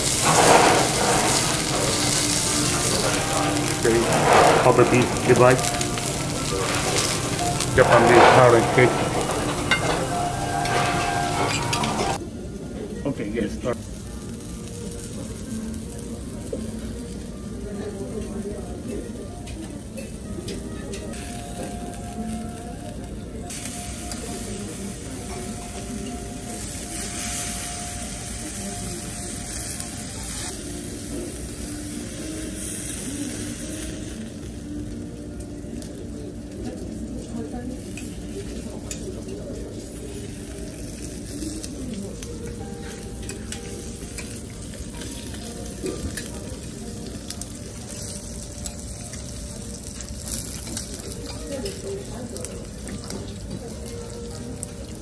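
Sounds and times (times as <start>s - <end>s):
food sizzling on a griddle: 0.0s - 55.0s
spatulas scraping a metal plate: 0.1s - 12.2s.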